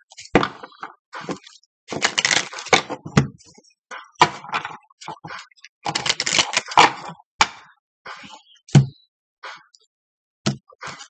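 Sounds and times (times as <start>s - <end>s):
cards being shuffled: 1.3s - 2.8s, 5.9s - 6.9s.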